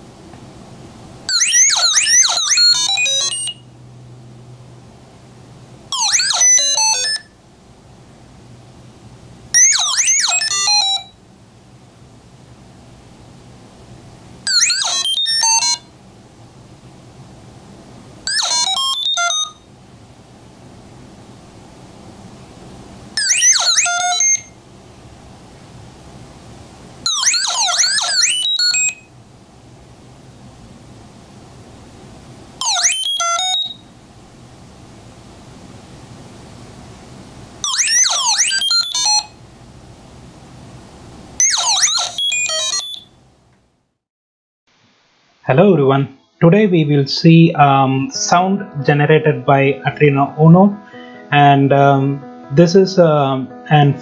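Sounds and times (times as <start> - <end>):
robot-like electronic beeps and whistles: 1.3 - 3.6, 5.9 - 7.3, 9.6 - 11.1, 14.5 - 15.8, 18.3 - 19.6, 23.2 - 24.5, 27.1 - 29.1, 32.6 - 33.8, 37.6 - 39.3, 41.4 - 43.1.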